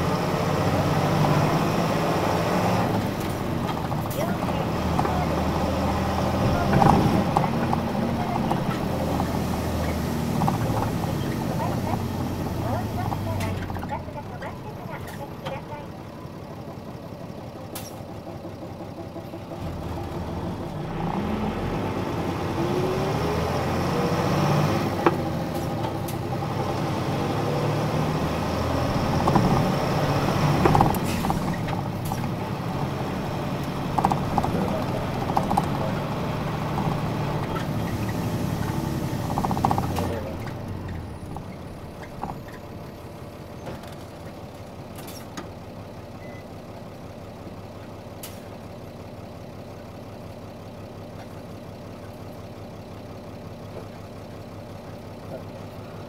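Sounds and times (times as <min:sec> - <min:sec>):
bus diesel engine revving: 0:00.0 - 0:46.4
knocks and rattles: 0:02.9 - 0:14.1, 0:29.0 - 0:32.4, 0:33.7 - 0:42.6.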